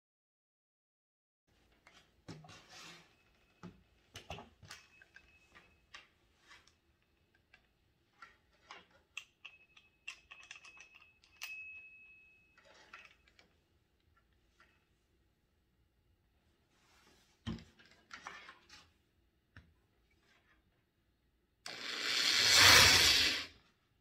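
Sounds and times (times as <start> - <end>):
thin high squeak: 21.9 - 23.5.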